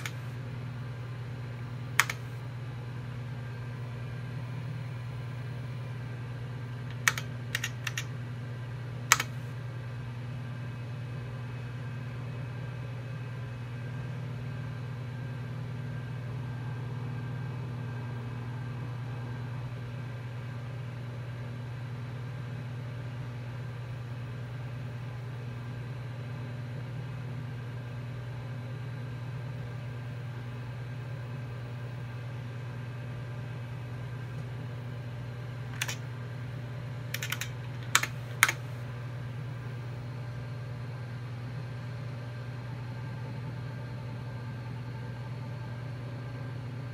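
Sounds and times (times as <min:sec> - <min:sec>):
keyboard key clicks: 0:00.0 - 0:00.2, 0:02.0 - 0:02.3, 0:06.9 - 0:08.1, 0:09.1 - 0:09.4, 0:35.8 - 0:36.0, 0:37.1 - 0:38.6
computer hum: 0:00.0 - 0:11.0, 0:29.4 - 0:40.8
computer fan and hard drive whir: 0:00.0 - 0:46.9.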